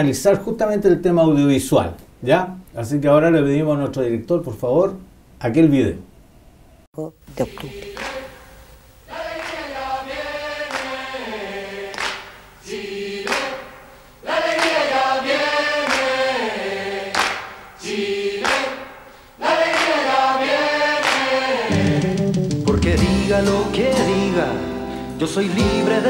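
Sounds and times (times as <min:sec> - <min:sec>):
choir singing: 0:07.4 - 0:26.0.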